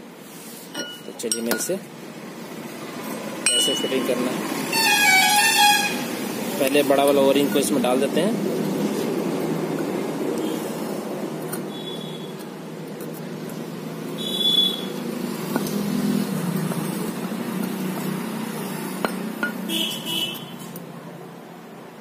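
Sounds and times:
high squeaks: 4.7 - 6.1.

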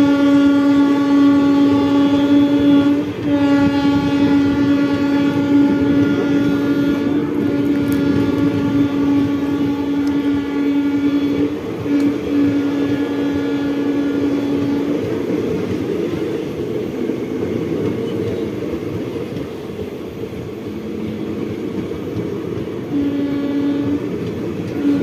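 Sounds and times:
train horn honking: 0.0 - 15.3, 22.8 - 25.0
train coaches clattering on rails: 0.0 - 25.0.

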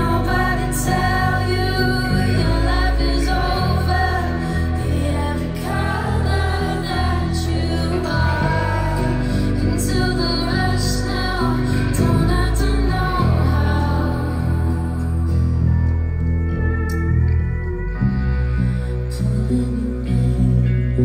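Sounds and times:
woman singing: 0.0 - 16.2, 17.9 - 21.0
live band playing: 0.0 - 21.0.

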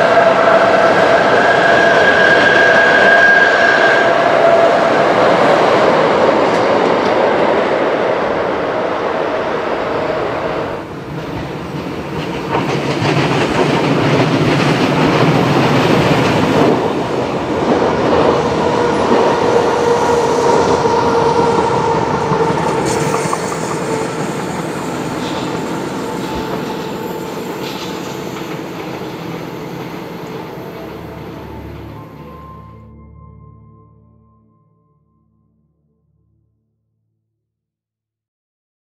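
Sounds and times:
train wheels clattering on rails: 10.9 - 32.0.

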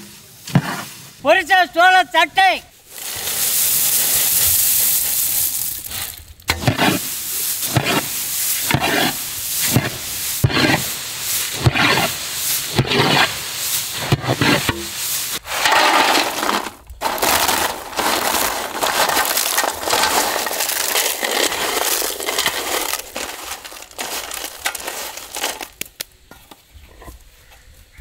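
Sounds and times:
crackers crushed on a steel plate: 2.9 - 9.2, 14.7 - 26.1.

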